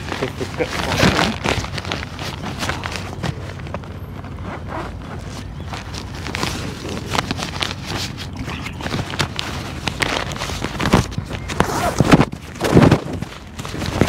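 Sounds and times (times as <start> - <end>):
tent bag rustling and scraping: 0.0 - 14.0
zipper: 4.3 - 14.0.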